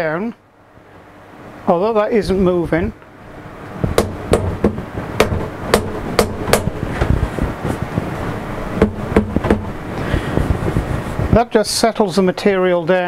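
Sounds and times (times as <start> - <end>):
steady background noise: 0.0 - 13.0
rubber mallet tapping metal: 4.0 - 6.9, 8.8 - 9.7.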